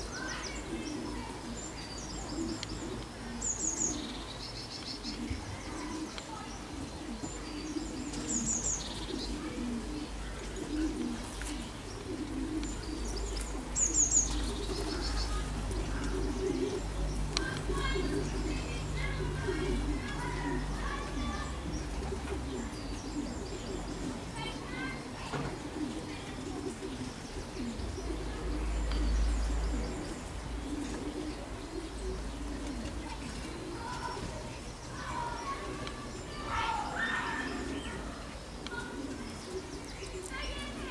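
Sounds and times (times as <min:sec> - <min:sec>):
faint small birds chirping: 0:00.0 - 0:40.9
pigeons cooing: 0:00.0 - 0:40.9
small bird chirping: 0:11.1 - 0:25.0.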